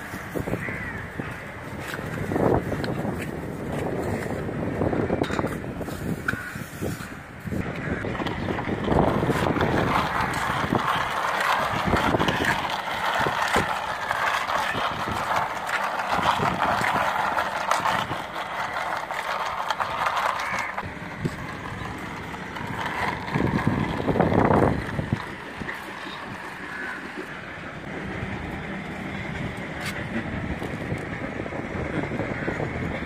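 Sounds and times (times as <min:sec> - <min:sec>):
toy car wheels rattling on concrete: 0:00.0 - 0:33.0.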